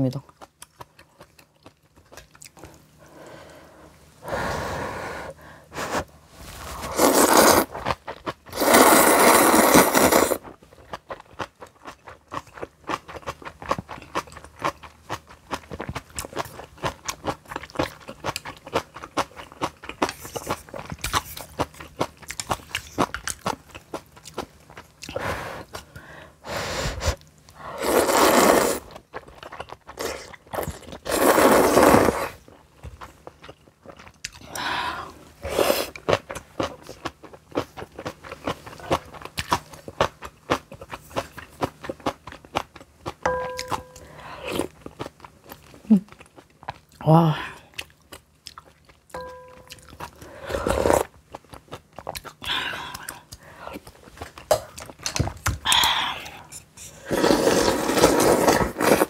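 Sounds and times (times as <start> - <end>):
loud slurps: 6.7 - 7.7, 8.6 - 10.4, 27.8 - 28.9, 31.0 - 32.4, 57.0 - 59.0.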